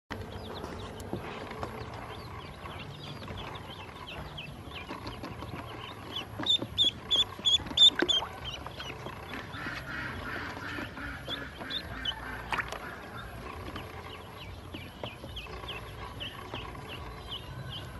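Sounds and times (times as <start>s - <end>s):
duckling peeping: 0.2s - 17.9s.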